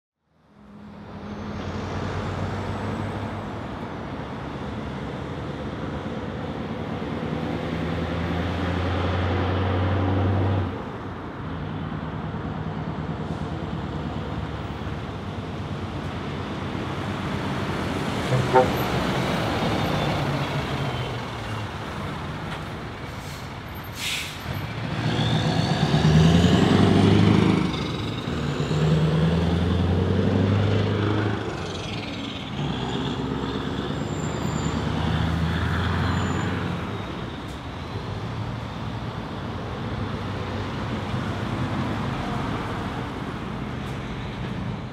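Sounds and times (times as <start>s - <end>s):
air brake hiss: 23.1s - 24.5s
truck engine accelerating: 24.4s - 38.2s.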